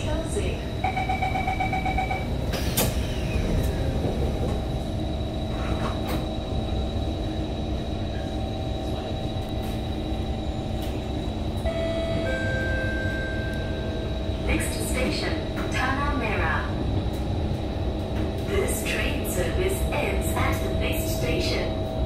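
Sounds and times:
train car rumble: 0:00.0 - 0:22.0
train door chime beeping: 0:00.8 - 0:02.4, 0:11.6 - 0:15.3
train doors shutting with a knock: 0:02.4 - 0:04.7
steady whine: 0:03.3 - 0:22.0.

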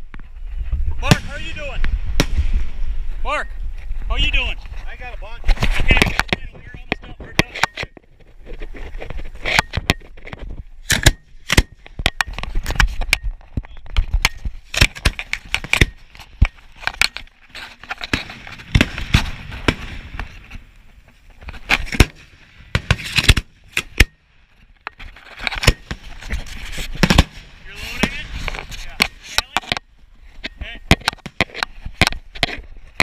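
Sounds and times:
fireworks bursting with bangs: 0:01.0 - 0:02.8, 0:18.0 - 0:20.7, 0:21.6 - 0:24.3, 0:25.6 - 0:26.2, 0:26.8 - 0:29.4.

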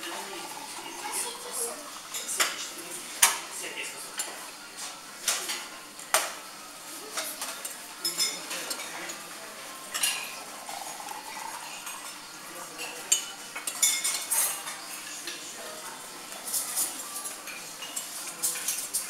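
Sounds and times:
cutlery clinking on ceramic plates: 0:07.1 - 0:15.6, 0:16.3 - 0:19.0.

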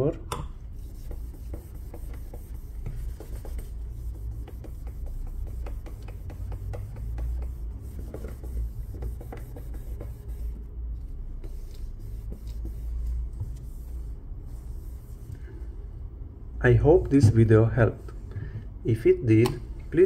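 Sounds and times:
steady low hum: 0:00.0 - 0:20.0
cloth rubbing on glass: 0:00.8 - 0:10.7.

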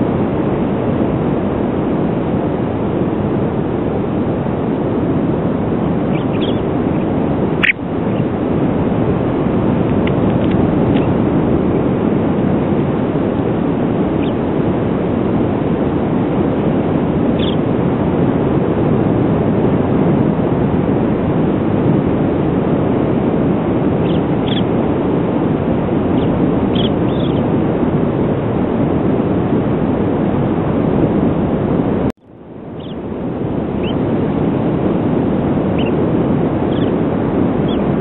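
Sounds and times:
wind on microphone: 0:00.0 - 0:38.0
bird chicks peeping: 0:06.1 - 0:06.6, 0:32.8 - 0:33.0.

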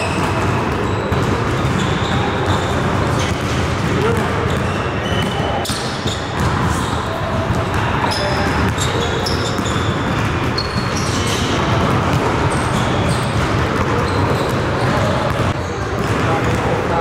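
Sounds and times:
basketballs bouncing on hardwood floor: 0:00.0 - 0:17.0
sneaker squeaks: 0:00.0 - 0:17.0.

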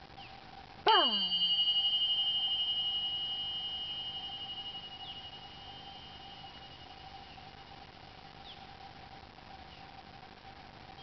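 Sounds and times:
small cymbals ringing: 0:00.9 - 0:08.2.

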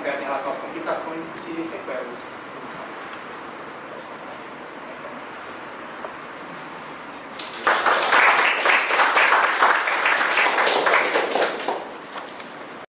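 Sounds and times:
small audience applauding: 0:07.4 - 0:12.0.

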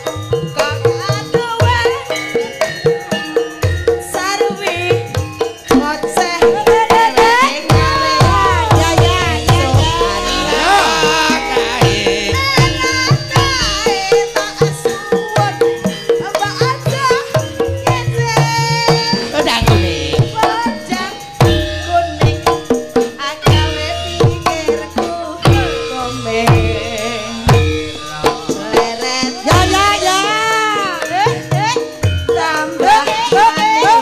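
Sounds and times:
ringing metallophone tones: 0:00.0 - 0:34.0
hand drum strokes: 0:06.2 - 0:22.8, 0:23.5 - 0:31.8
person singing: 0:06.4 - 0:17.0, 0:17.9 - 0:21.3, 0:22.2 - 0:34.0.

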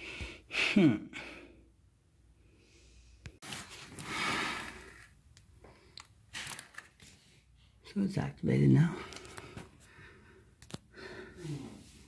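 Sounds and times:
man breathing: 0:09.1 - 0:12.0.

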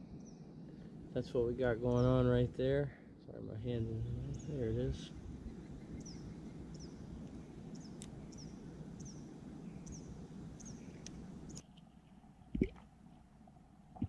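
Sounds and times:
bird chirping: 0:00.0 - 0:00.6, 0:03.6 - 0:12.1
low outdoor rumble: 0:00.0 - 0:14.0.

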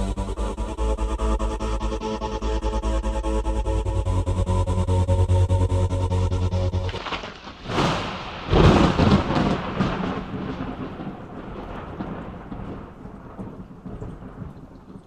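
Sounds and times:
long rumble: 0:00.0 - 0:14.9
cinematic crash: 0:06.7 - 0:13.0.

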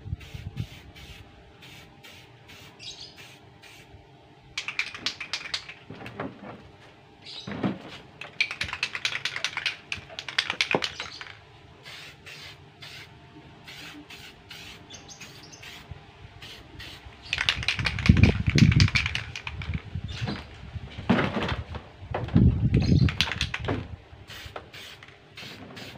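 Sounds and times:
spray can hissing: 0:00.2 - 0:03.9, 0:08.4 - 0:19.5, 0:24.3 - 0:25.9
rapid clicking: 0:04.6 - 0:05.8, 0:08.2 - 0:11.4, 0:17.3 - 0:19.8.

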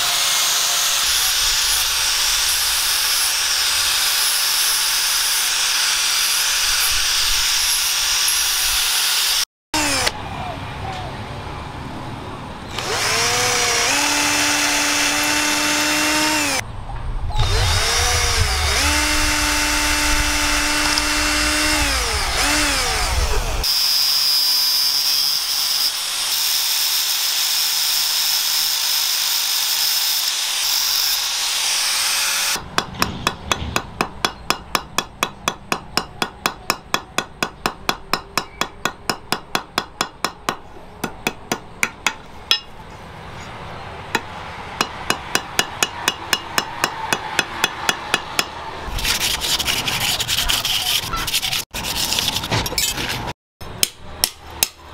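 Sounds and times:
cordless drill drilling wood: 0:00.0 - 0:10.1, 0:12.7 - 0:16.6, 0:17.4 - 0:32.6
angle grinder whine: 0:00.0 - 0:10.2, 0:12.7 - 0:16.6, 0:17.4 - 0:23.8
hammer striking on anvil: 0:32.6 - 0:42.8, 0:44.1 - 0:48.6.

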